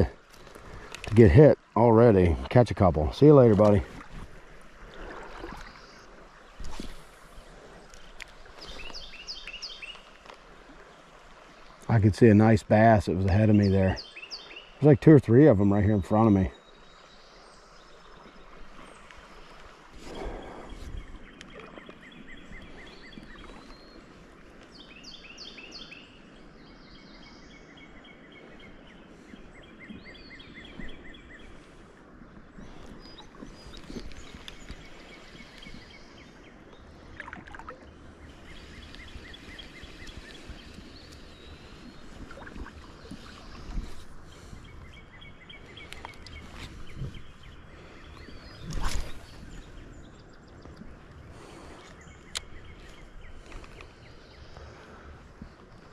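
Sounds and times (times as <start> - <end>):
songbirds chirping: 0.0 - 55.9
fishing rod cast whoosh: 48.7 - 49.3.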